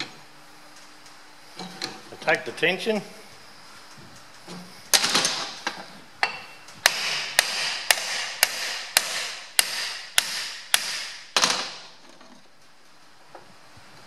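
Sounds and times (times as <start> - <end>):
hammer striking metal: 6.2 - 11.2.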